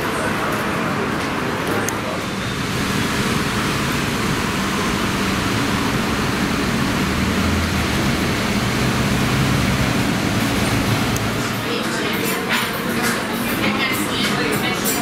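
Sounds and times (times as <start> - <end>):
city street traffic: 0.0 - 15.0
low engine hum: 2.4 - 11.8.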